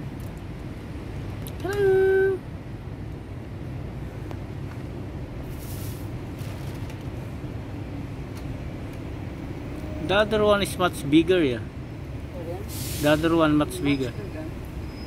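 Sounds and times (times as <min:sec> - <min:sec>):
street traffic rumble: 0:00.0 - 0:15.0
brief hiss: 0:05.5 - 0:06.1, 0:12.7 - 0:13.3.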